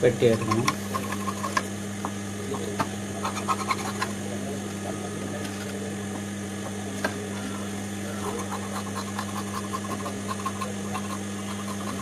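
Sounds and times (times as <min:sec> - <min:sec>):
low electrical hum: 0:00.0 - 0:12.0
shears snipping cloth: 0:08.2 - 0:12.0.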